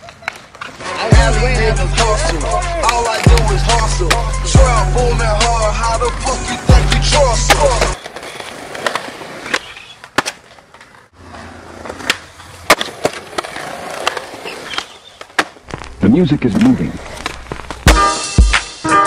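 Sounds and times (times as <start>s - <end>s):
skateboard clacking on ground: 0.0s - 1.1s, 2.0s - 3.6s, 6.0s - 18.0s
skateboard wheels rolling on concrete: 0.0s - 18.8s
rap music with deep bass: 1.0s - 8.0s.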